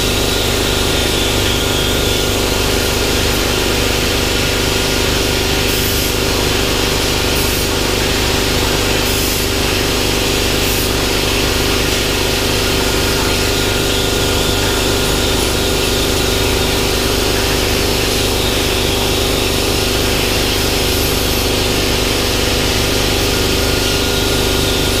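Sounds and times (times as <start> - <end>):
plasma torch hissing: 0.1 - 25.0.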